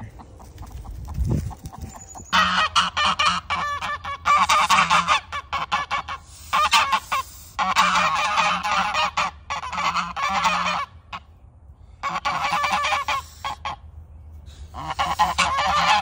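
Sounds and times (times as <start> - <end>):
geese honking: 1.6 - 11.4, 12.0 - 16.0.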